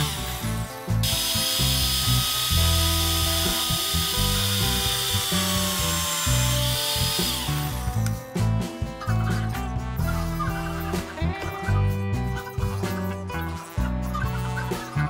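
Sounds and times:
drill press boring through wood: 0:00.0 - 0:08.2.

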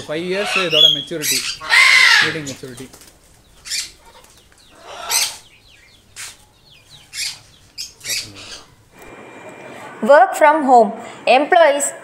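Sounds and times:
parrots squawking harshly: 0:00.0 - 0:02.6, 0:03.6 - 0:08.8.

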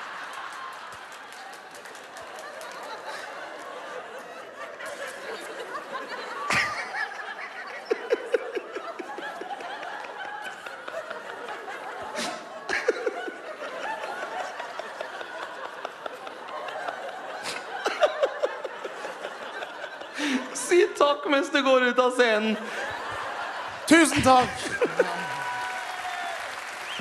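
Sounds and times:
audience laughing: 0:00.0 - 0:27.0
loud person laughing: 0:24.1 - 0:25.6.

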